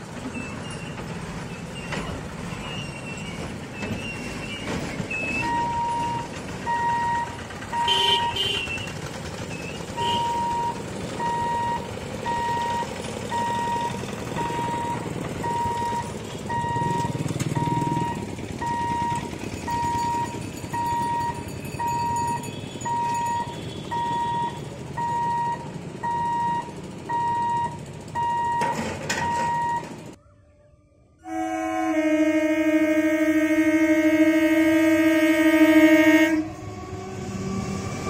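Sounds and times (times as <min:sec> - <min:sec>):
level crossing warning beeps: 0:02.7 - 0:08.8, 0:09.5 - 0:30.1
motorbike and scooter engines passing: 0:05.4 - 0:28.4.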